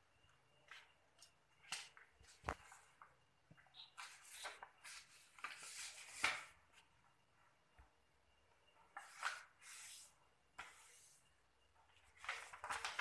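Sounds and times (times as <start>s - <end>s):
paper rustling and crackling: 3.9s - 6.7s, 8.8s - 11.1s, 11.9s - 13.0s.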